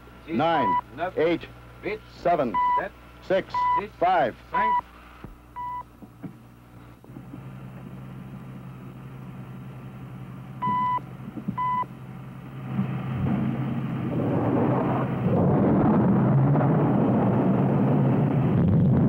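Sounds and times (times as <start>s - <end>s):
low steady hum: 0.0s - 19.0s
high-pitched countdown beeps: 2.6s - 2.9s, 3.6s - 3.9s
rushing rumble of explosion: 13.2s - 19.0s.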